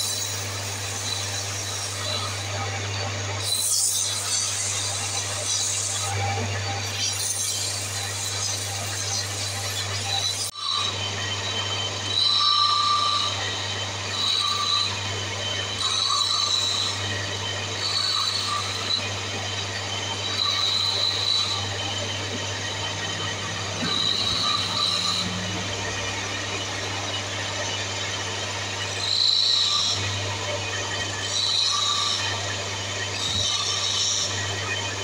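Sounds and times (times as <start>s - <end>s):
high-pitched cutting squeal: 0.0s - 35.0s
wood lathe humming: 0.0s - 35.0s.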